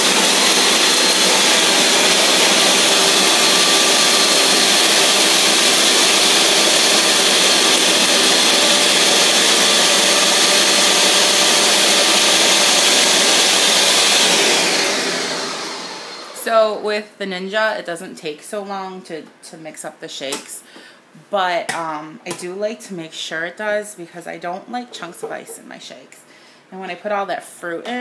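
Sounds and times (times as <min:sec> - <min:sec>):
blender whirring: 0:00.0 - 0:16.4.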